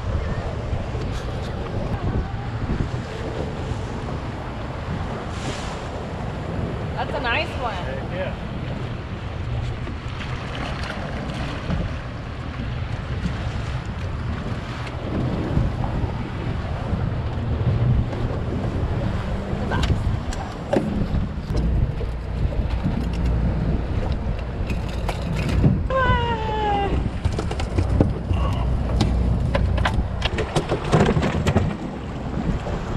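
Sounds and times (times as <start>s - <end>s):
low steady rumble: 0.0s - 32.9s
water against boat hull: 0.0s - 32.9s
wind buffeting microphone: 0.0s - 32.9s.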